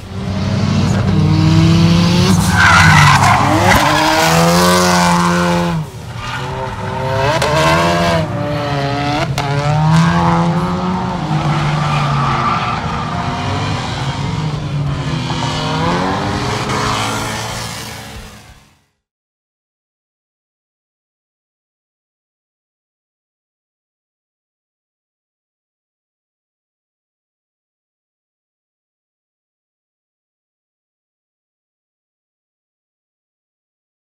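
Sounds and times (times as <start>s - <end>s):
car engine revving: 0.0s - 18.6s.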